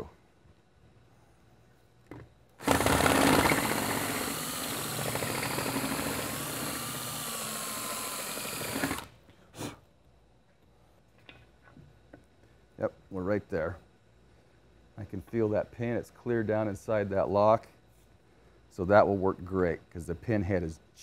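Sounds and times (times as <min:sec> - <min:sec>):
power drill cutting plastic: 0:02.6 - 0:09.1.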